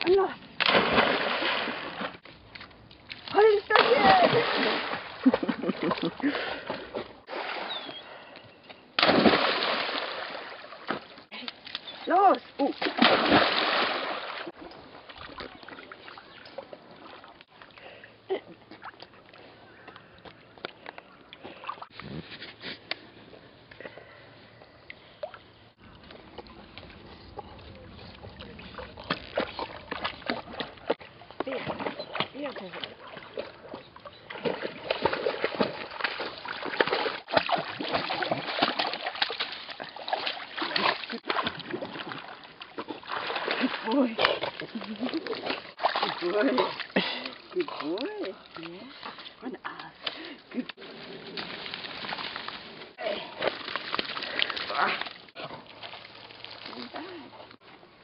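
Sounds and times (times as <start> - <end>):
dog splashing through water: 0.6 - 2.2, 3.1 - 6.1, 9.0 - 11.1, 12.7 - 14.5, 26.5 - 49.2.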